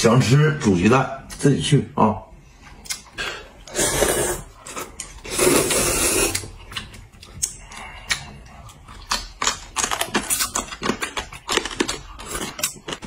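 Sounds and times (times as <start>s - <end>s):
slurping noodles: 3.2s - 6.6s.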